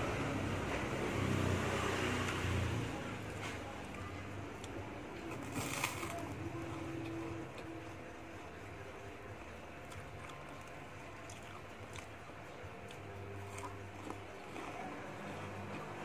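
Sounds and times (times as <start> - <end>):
steady low hum: 0.0 - 16.0
chewing soft sweets: 0.7 - 16.0.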